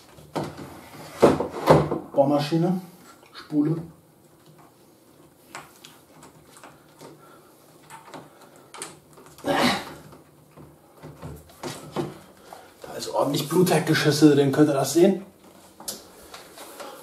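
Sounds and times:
small handling clicks and rustles: 4.2 - 12.9.

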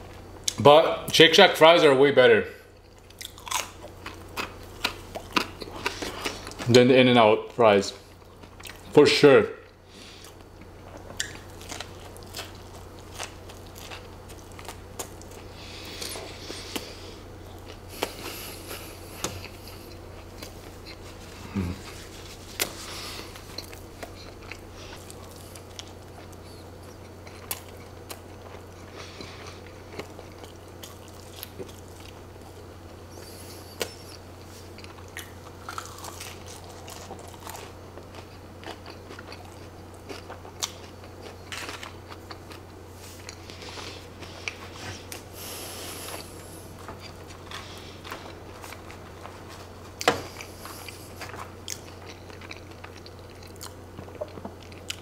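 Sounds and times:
steady low hum: 0.0 - 55.0
close chewing mouth sounds: 2.8 - 6.7, 10.2 - 55.0.

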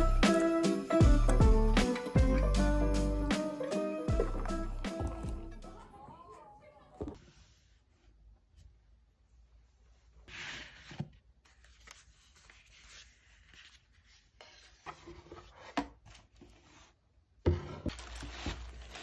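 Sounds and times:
tissue paper rustling: 17.9 - 19.0.

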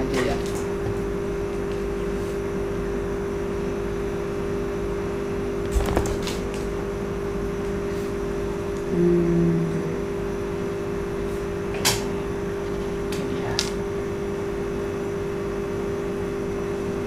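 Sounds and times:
appliance hum: 0.0 - 17.0.

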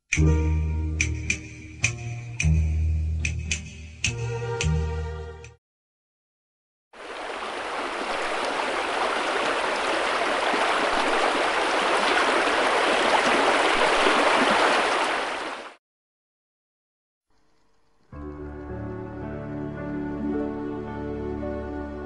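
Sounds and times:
waterfall splashing: 7.0 - 15.8.

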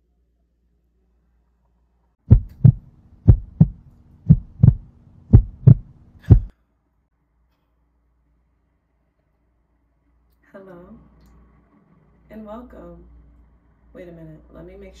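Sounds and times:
faint steady hum: 0.0 - 15.0
heartbeat thumps: 2.2 - 6.5.

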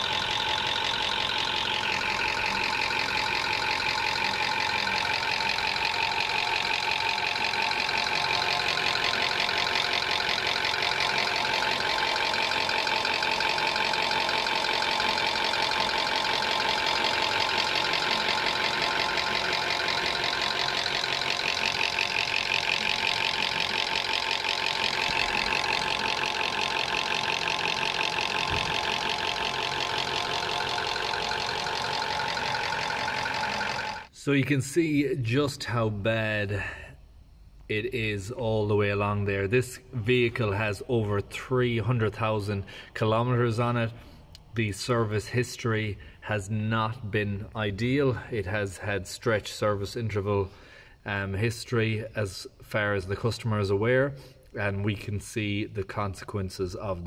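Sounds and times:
engine idling with knocking rattle: 0.0 - 34.1.

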